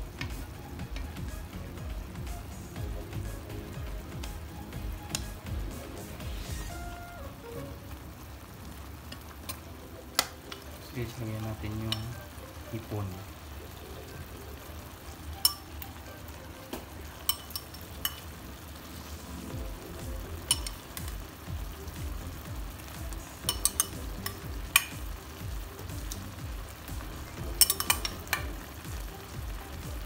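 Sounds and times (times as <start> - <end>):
liquid simmering in a pan: 0.0 - 30.0
metal ladle clinking on pan: 17.2 - 18.2, 20.5 - 20.8, 23.4 - 25.0, 27.6 - 28.5.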